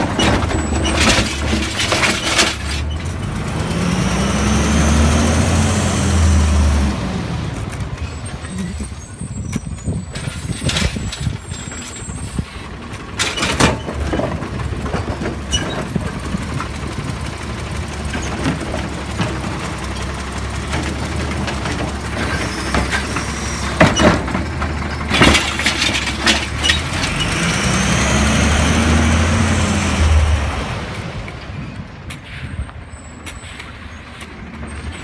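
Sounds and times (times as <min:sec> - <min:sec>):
cart and gripper clunks: 0:00.0 - 0:03.3, 0:09.5 - 0:17.1, 0:18.1 - 0:27.4
garbage truck engine running: 0:00.0 - 0:32.0
engine revving: 0:03.2 - 0:07.6, 0:26.7 - 0:31.2.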